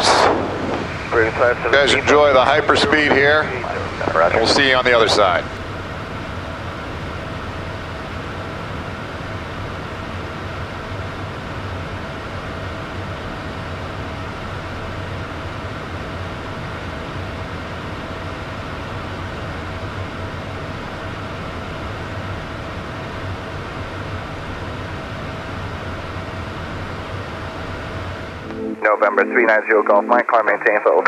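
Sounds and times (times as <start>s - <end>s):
low hum: 0.0s - 17.3s
thin steady whine: 0.0s - 31.0s.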